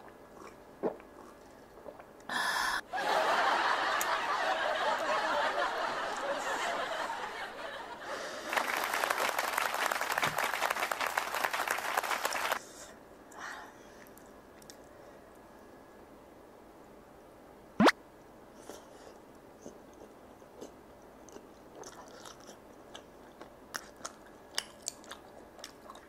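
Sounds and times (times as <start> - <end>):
canned audience laughter: 2.9 - 8.8
canned applause: 8.4 - 12.6.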